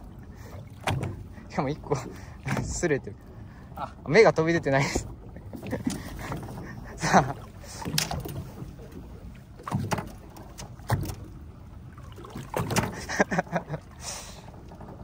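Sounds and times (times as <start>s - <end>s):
water lapping against hull: 0.0s - 15.0s.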